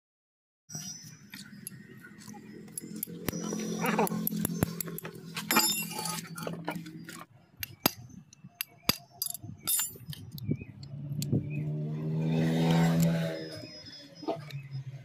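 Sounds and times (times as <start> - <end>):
humming drone: 0.8 - 7.9, 10.3 - 15.0
metal tool clicks and taps: 1.3 - 6.2, 7.6 - 11.4.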